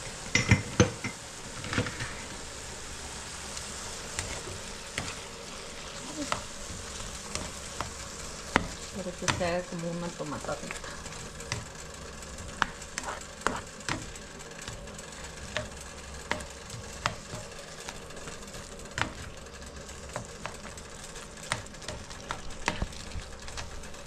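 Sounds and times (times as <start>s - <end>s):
vegetables frying in a pot: 0.0s - 24.0s.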